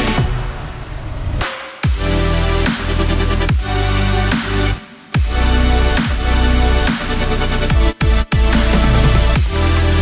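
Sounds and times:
electronic music with heavy bass: 0:00.0 - 0:10.0.

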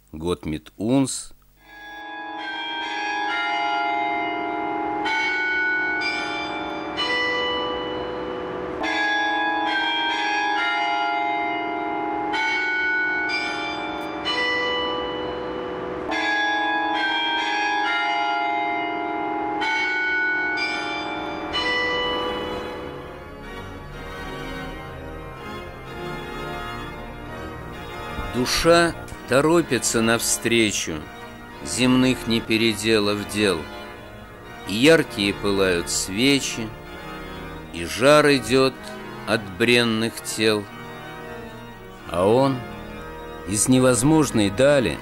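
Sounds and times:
church bells ringing: 0:01.6 - 0:45.0.

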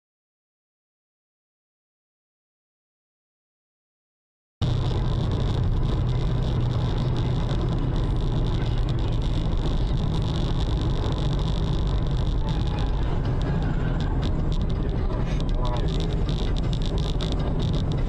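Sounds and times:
car road and engine noise: 0:04.6 - 0:18.0.

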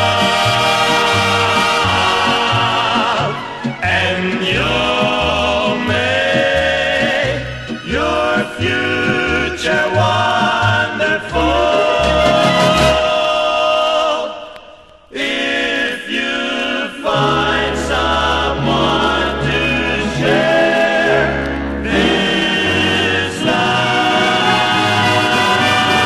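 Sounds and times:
orchestral backing: 0:00.0 - 0:13.7, 0:17.1 - 0:26.0
male vocal group harmony: 0:00.0 - 0:26.0.

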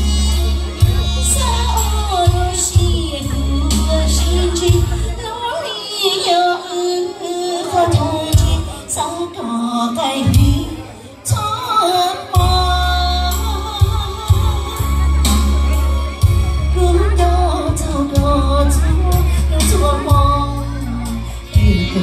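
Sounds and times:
keyboard backing: 0:00.0 - 0:22.0
woman singing into a microphone: 0:00.0 - 0:22.0
heavy bass beat: 0:17.8 - 0:22.0.

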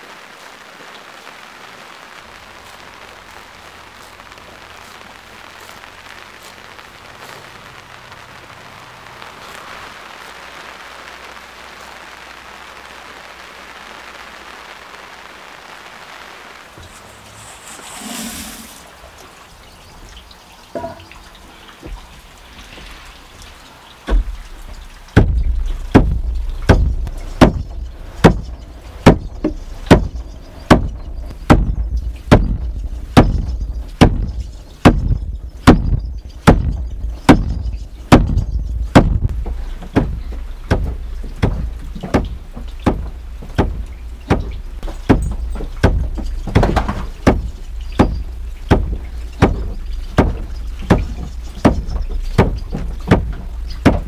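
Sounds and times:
churn splashing: 0:16.8 - 0:19.7, 0:34.9 - 0:54.0
churn dasher thumping: 0:33.2 - 0:54.0.

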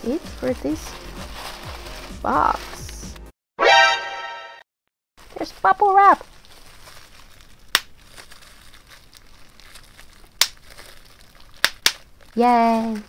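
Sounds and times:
paper and bubble wrap crinkling: 0:00.0 - 0:03.3, 0:05.2 - 0:13.0
bubble wrap snaps: 0:05.2 - 0:13.0.

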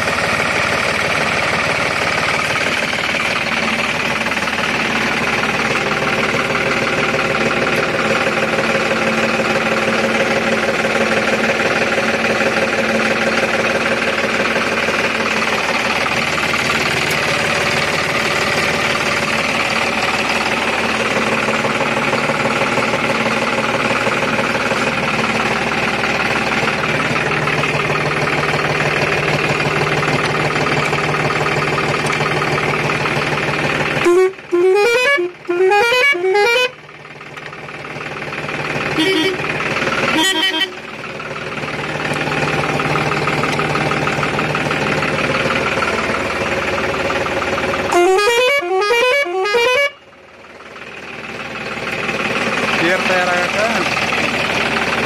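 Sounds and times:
tractor diesel engine idling: 0:00.0 - 0:55.0
air horn rising notes and blasts: 0:34.0 - 0:36.8, 0:39.0 - 0:39.5, 0:40.1 - 0:40.8, 0:47.9 - 0:50.1.

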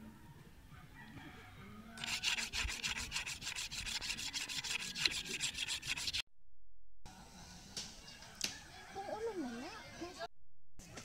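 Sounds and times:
blade scraping on whetstone: 0:02.0 - 0:06.2.

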